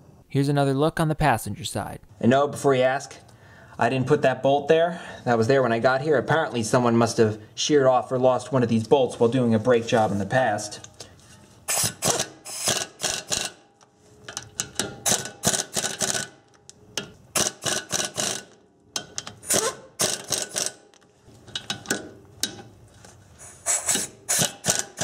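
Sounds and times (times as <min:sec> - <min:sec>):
pneumatic air ratchet bursts: 0:11.7 - 0:13.6, 0:15.0 - 0:16.4, 0:17.3 - 0:18.5, 0:19.3 - 0:20.8, 0:23.4 - 0:25.0.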